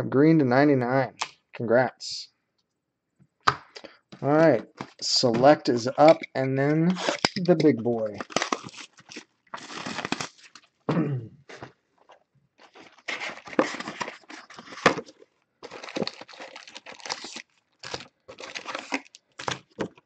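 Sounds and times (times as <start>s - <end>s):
packaging ripping and crackling: 6.9s - 10.8s, 12.6s - 20.0s.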